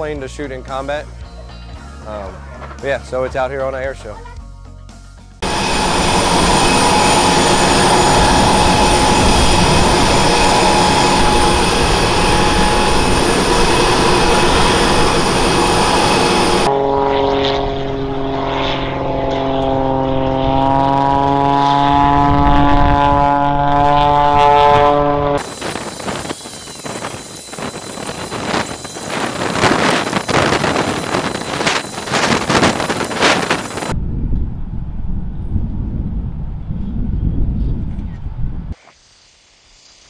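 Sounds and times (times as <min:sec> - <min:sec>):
droning hum of stacked tones: 0:05.4 - 0:34.0
aircraft engine whining rush: 0:05.4 - 0:38.8.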